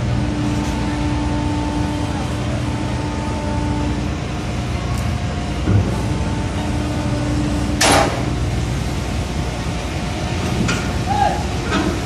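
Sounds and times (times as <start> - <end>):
crane machinery droning: 0.0 - 12.0.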